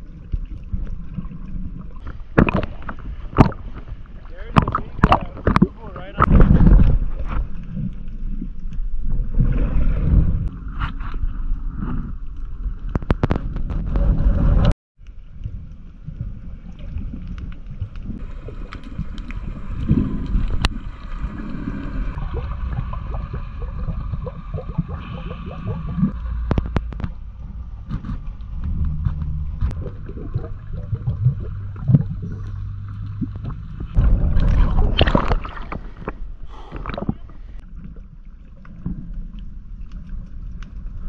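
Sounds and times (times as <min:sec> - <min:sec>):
underwater water rumble: 0:00.0 - 0:41.0
underwater clicks and pops: 0:02.0 - 0:03.9, 0:04.5 - 0:08.8, 0:12.8 - 0:14.7, 0:16.8 - 0:20.8, 0:23.7 - 0:37.4.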